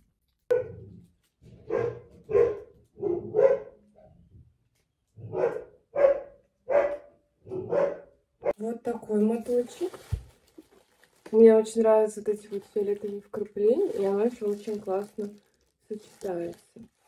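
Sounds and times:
dog barking: 0.5 - 0.9, 1.6 - 3.8, 5.2 - 8.6.

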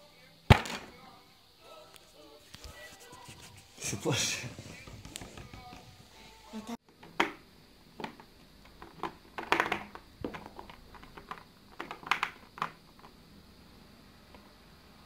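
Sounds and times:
plasticine sticks tapping on wood: 8.0 - 13.1.

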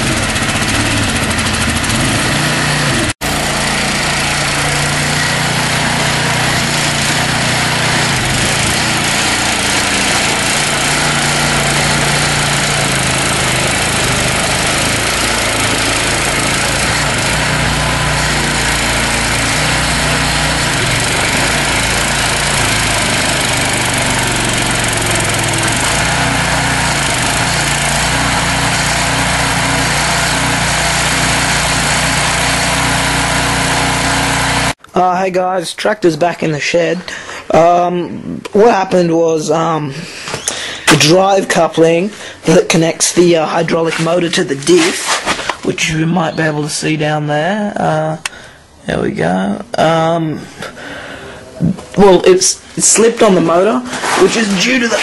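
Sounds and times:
small tractor engine running: 0.0 - 34.8.

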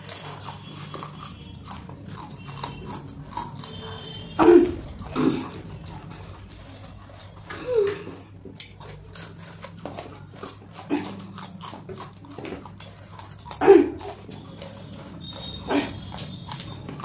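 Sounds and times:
chillies being crunched and chewed: 0.0 - 17.0.

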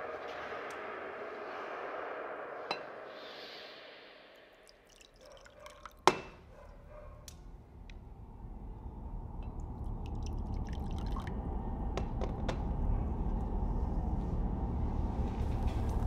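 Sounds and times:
liquor pouring into glass: 4.6 - 6.0, 9.6 - 11.3.

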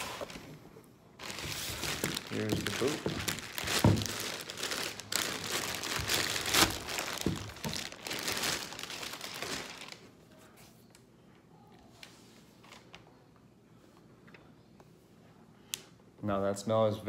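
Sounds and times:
plastic bag crinkling: 1.2 - 10.1.

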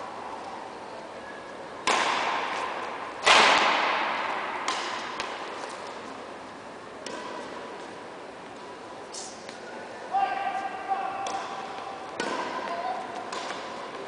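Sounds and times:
racket striking shuttlecock: 1.8 - 5.9, 7.0 - 7.6, 11.2 - 14.0.

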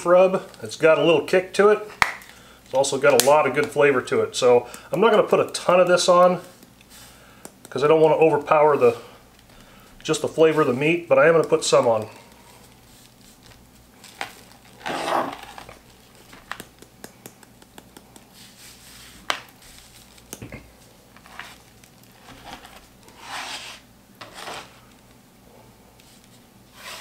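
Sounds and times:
hands rubbing spices on meat: 2.7 - 14.6, 15.4 - 24.8.

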